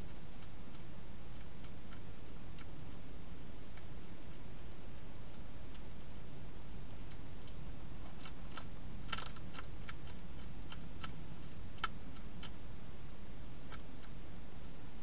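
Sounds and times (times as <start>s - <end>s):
low background hiss: 0.0s - 15.0s
hedgehog crunching dry food: 7.0s - 12.6s.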